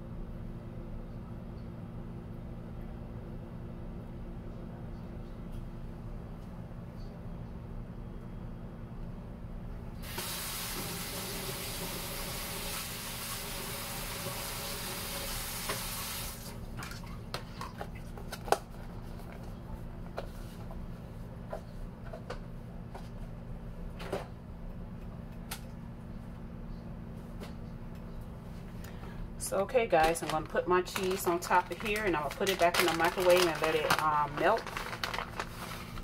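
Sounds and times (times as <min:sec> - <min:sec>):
faucet running: 0:10.0 - 0:16.5.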